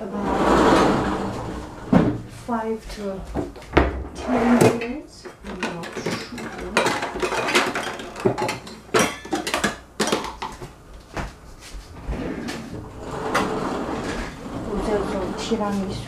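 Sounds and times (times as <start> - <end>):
utensils knocking and clinking: 3.4 - 10.8.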